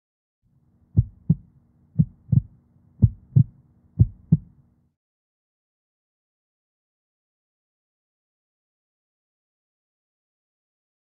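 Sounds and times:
faint low hum: 0.5s - 5.0s
heartbeat double thumps: 1.0s - 4.5s.

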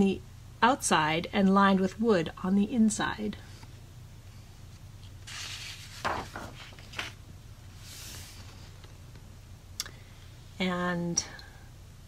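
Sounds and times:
paper rustle of page turning: 5.0s - 7.2s.

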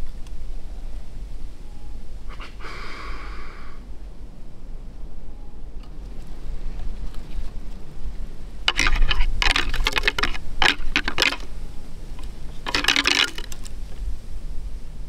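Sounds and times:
antlers clattering together: 8.7s - 11.5s, 12.6s - 13.8s.

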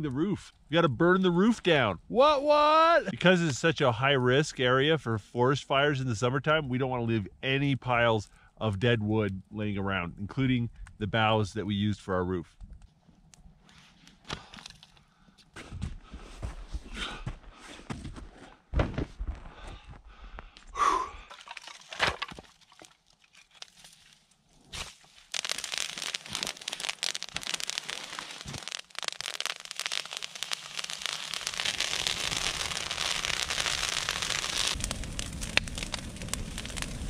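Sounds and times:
fire crackling: 0.0s - 15.5s, 19.2s - 37.0s
knocks and thumps: 17.9s - 19.9s.

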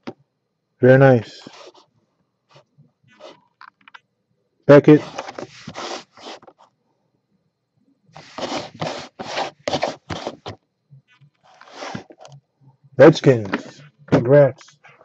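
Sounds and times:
plastic case scraping on table: 5.0s - 6.6s, 8.2s - 10.6s, 11.5s - 12.3s.

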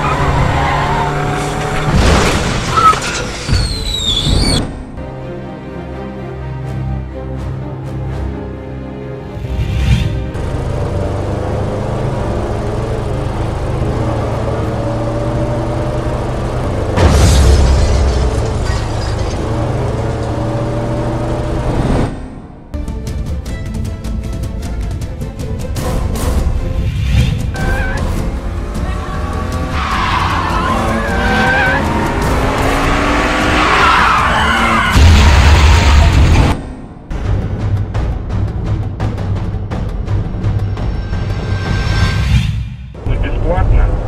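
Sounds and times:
vehicle engine droning: 10.2s - 22.7s, 27.5s - 37.5s
tyres squealing: 27.6s - 32.2s.

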